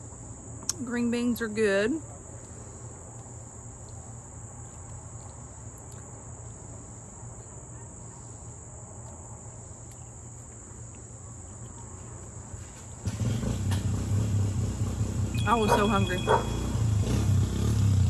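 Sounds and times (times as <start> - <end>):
high-pitched drone: 15.4 - 16.9.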